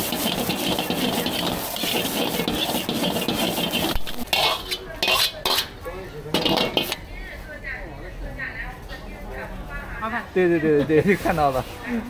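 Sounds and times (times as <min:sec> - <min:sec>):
metal ladle scraping wok: 0:00.0 - 0:07.1
wok knocks: 0:06.3 - 0:07.0.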